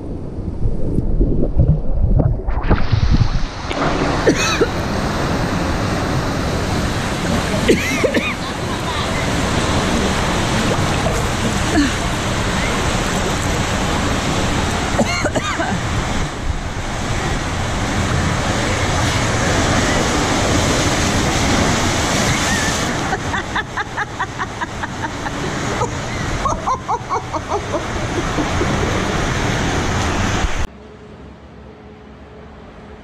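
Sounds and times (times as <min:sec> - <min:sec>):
water slapping: 0:00.9 - 0:30.7
water gushing into a pool: 0:01.1 - 0:23.8.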